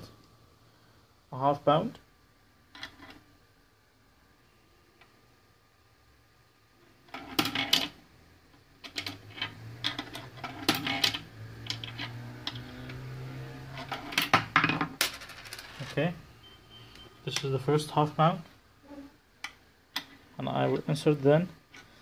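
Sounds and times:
coin acceptor clicks and rattles: 2.7s - 3.2s, 7.1s - 8.0s, 8.8s - 13.0s, 13.7s - 16.2s.

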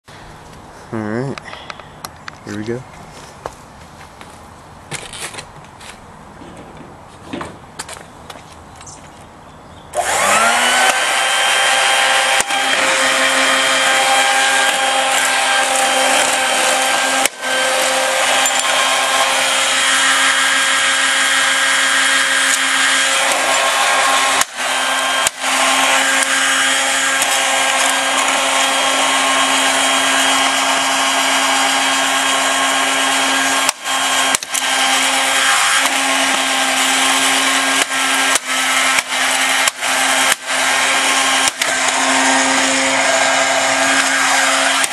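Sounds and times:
handheld vacuum motor whining: 9.9s - 44.9s.

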